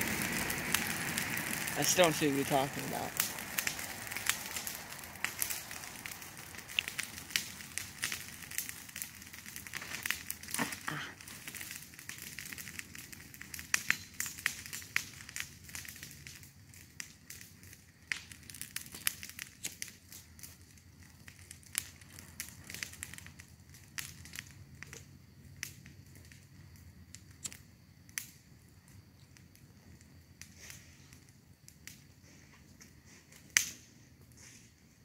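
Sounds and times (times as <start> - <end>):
loud crack: 0.0 - 11.8
sharp clicks and crackles: 0.0 - 26.5, 27.1 - 34.4.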